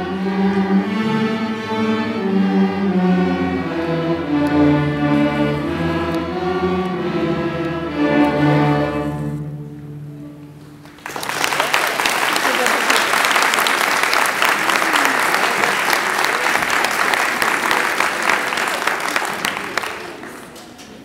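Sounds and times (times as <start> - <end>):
violins bowing sustained notes: 0.0 - 10.9
string orchestra playing: 0.0 - 11.3.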